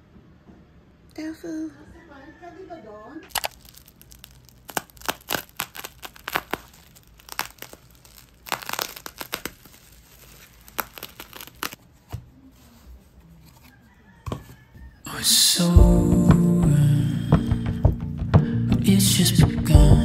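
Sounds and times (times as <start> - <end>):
plastic and bubble wrap crinkling: 3.3 - 12.9.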